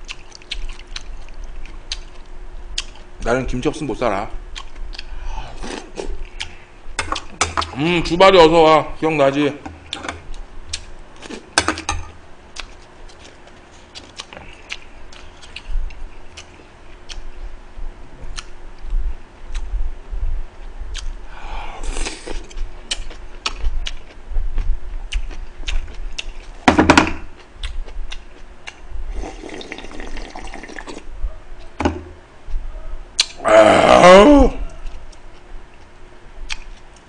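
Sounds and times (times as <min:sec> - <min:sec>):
chewing and wet mouth sounds: 0:00.0 - 0:03.1, 0:04.5 - 0:07.4, 0:09.9 - 0:11.4, 0:12.5 - 0:17.4, 0:18.3 - 0:19.8, 0:20.9 - 0:21.2, 0:21.8 - 0:26.6, 0:27.3 - 0:31.8, 0:34.6 - 0:37.0
sipping broth: 0:29.1 - 0:31.1.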